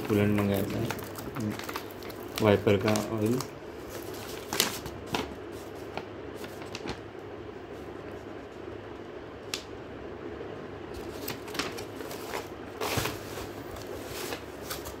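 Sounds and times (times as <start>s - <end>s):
paper and bubble wrap crinkling: 0.0s - 7.0s, 11.0s - 15.0s
low background hum: 0.0s - 15.0s.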